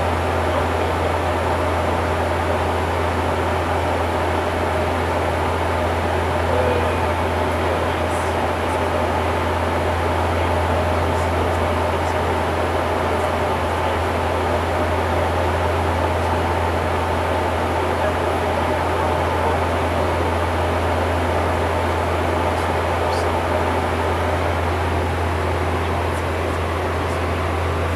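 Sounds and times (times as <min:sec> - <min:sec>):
engine and airflow rush: 0:00.0 - 0:27.9
propeller drone: 0:00.0 - 0:27.9.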